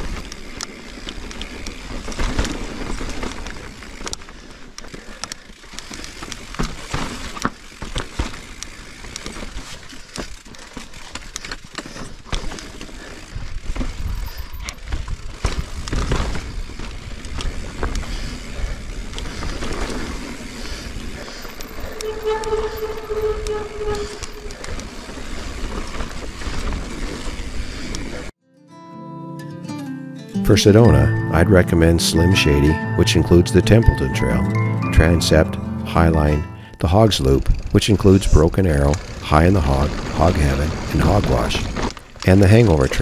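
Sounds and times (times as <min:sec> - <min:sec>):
tyre noise on dirt and rock: 0:00.0 - 0:21.9
bike rattling and knocking: 0:00.0 - 0:28.3.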